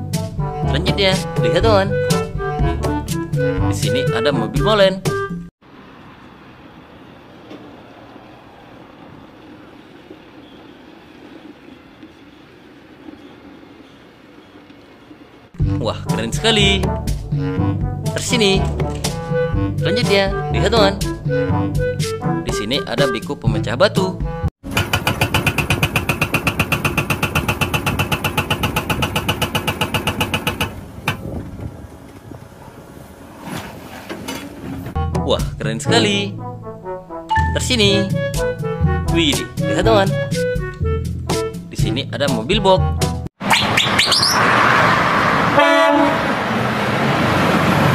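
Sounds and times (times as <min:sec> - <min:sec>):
outdoor noise: 0:05.3 - 0:15.7, 0:24.6 - 0:35.0, 0:43.3 - 0:47.9
diesel engine running: 0:05.6 - 0:18.1, 0:24.6 - 0:33.4
hydraulic breaker hammering rock: 0:24.6 - 0:31.3.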